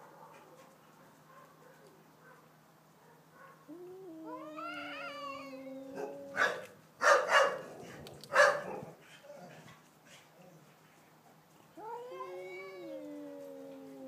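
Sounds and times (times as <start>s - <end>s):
cats yowling: 3.7s - 6.7s, 11.8s - 14.0s.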